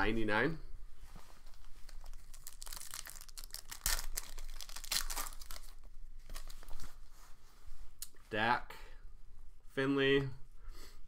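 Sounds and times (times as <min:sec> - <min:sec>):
foil wrapper tearing and crinkling: 0:02.0 - 0:05.9.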